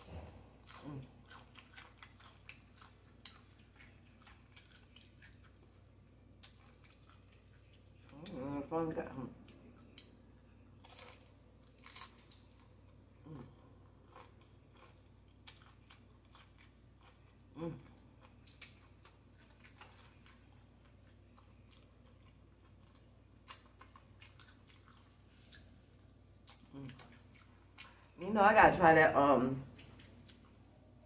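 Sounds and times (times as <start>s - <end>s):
chewing chips: 0.0s - 8.6s, 9.4s - 28.2s.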